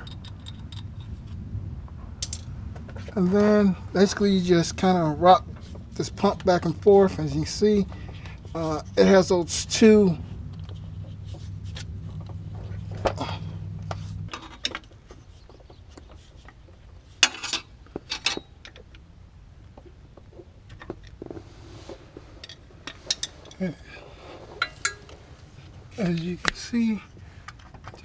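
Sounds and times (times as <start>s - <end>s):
metal clinks and knocks: 0.0s - 1.4s, 2.2s - 3.6s, 17.2s - 19.0s, 24.6s - 25.2s
low steady hum: 0.0s - 28.0s.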